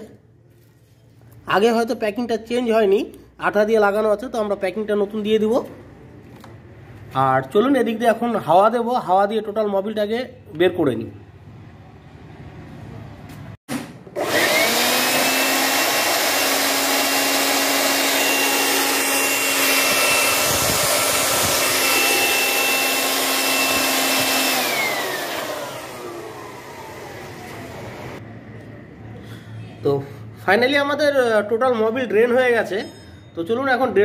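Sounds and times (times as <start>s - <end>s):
air blower motor whine: 14.1s - 28.2s.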